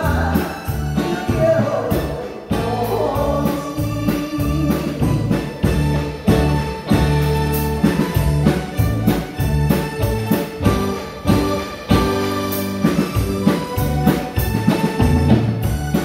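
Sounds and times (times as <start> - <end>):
woman singing: 0.0 - 5.6
live band playing: 0.0 - 16.0.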